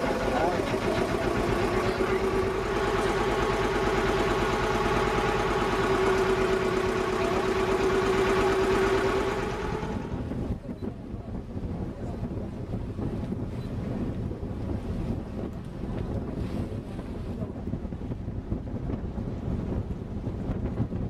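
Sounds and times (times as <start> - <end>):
engine humming: 0.0 - 10.6.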